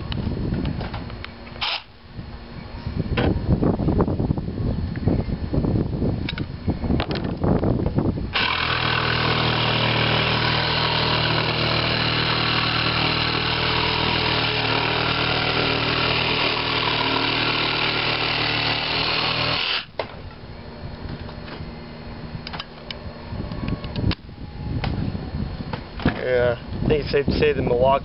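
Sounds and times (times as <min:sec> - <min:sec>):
jigsaw cutting wood: 0:08.3 - 0:19.9.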